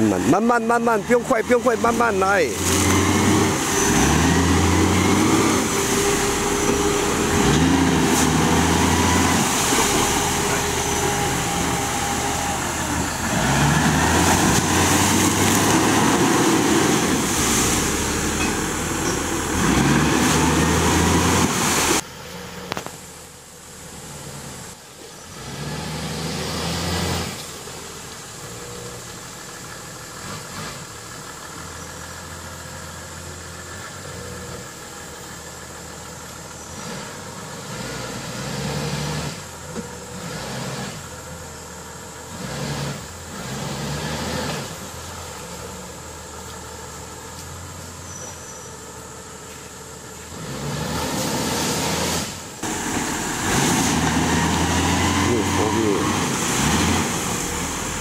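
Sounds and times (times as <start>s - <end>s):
engine revving hard: 0.0s - 22.0s, 36.8s - 39.4s, 40.1s - 41.1s, 42.3s - 44.8s, 50.3s - 58.0s
engine idling: 0.0s - 25.4s, 27.4s - 37.7s, 52.3s - 58.0s.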